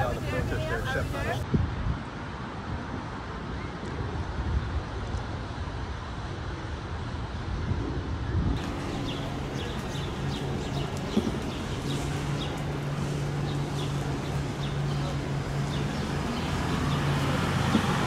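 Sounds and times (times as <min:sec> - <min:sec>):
traffic engine hum: 0:00.0 - 0:01.4, 0:08.6 - 0:18.0
bird chirping: 0:08.6 - 0:17.9.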